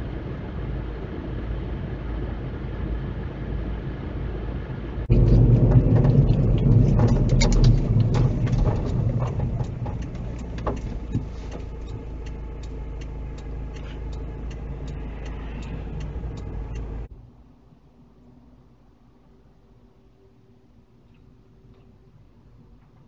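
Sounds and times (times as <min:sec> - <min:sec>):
car engine idling: 0:00.0 - 0:17.1
car road and engine noise: 0:00.0 - 0:23.0
turn signal ticking: 0:05.1 - 0:17.1.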